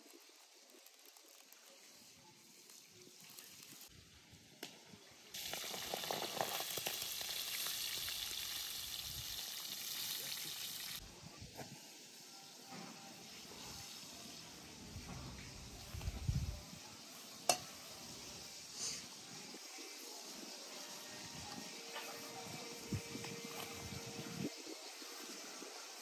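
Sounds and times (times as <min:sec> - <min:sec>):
hot oil sizzling: 0:00.0 - 0:11.0, 0:11.8 - 0:26.0.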